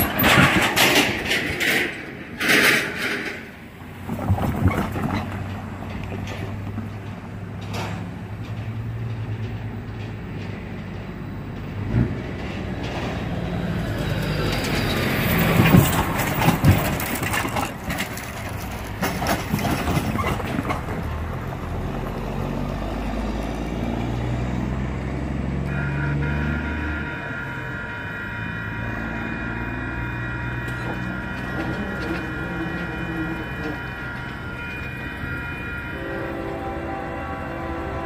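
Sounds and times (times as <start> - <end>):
wheels clunking over rails: 0.0 - 22.2, 28.8 - 36.7
diesel truck engine: 0.0 - 38.0.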